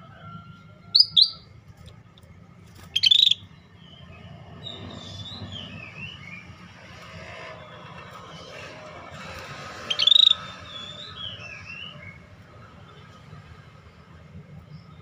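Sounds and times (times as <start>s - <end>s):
bird calling and warbling: 0.9s - 1.5s, 2.8s - 12.2s.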